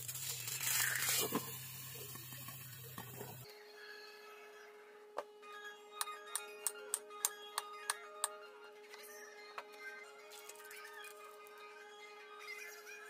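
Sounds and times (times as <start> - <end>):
egg sizzling with pops: 0.0 - 3.4
water poured into hot pan: 0.0 - 3.4.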